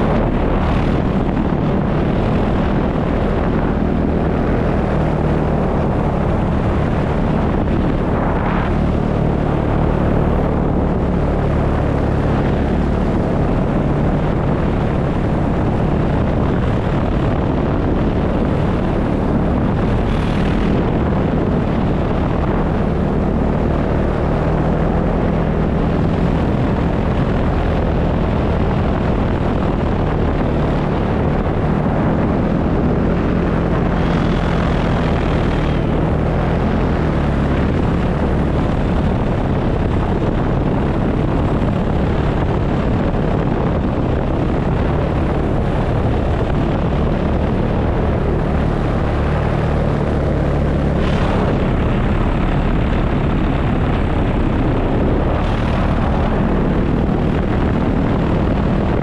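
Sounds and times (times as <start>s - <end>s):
paramotor engine droning: 0.0s - 59.0s.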